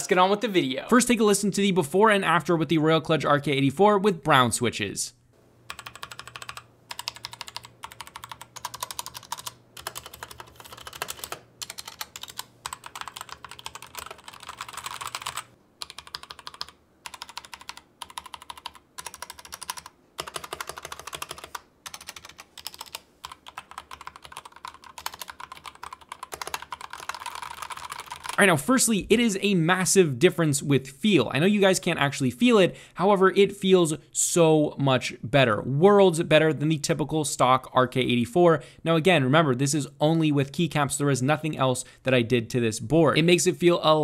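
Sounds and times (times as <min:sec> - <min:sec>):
fast typing on mechanical keyboard: 0:05.7 - 0:28.4.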